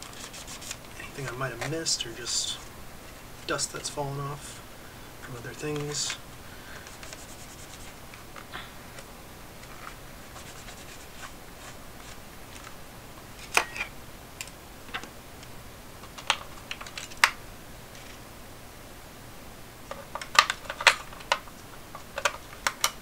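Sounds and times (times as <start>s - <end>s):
tissue rubbing plastic: 0.0s - 1.0s, 6.8s - 8.0s, 9.6s - 12.2s.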